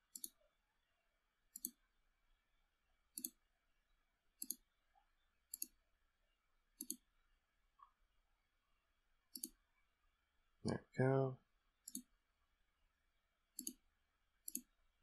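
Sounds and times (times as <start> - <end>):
computer mouse clicks: 0.1 - 0.4, 1.5 - 1.8, 3.1 - 3.4, 4.4 - 4.6, 5.5 - 5.8, 6.8 - 7.0, 9.3 - 9.6, 11.8 - 12.1, 13.6 - 13.8, 14.4 - 14.8.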